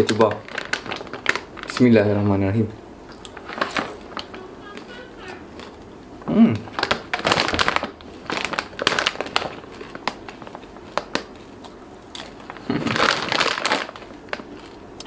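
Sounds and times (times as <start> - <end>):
chips crunched and chewed: 11.0 - 15.0.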